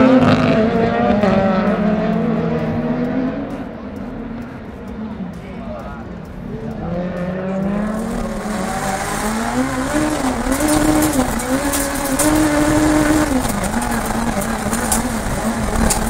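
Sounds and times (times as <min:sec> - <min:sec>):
racing car engine revving: 0:00.0 - 0:16.0
crackling hiss: 0:07.8 - 0:16.0.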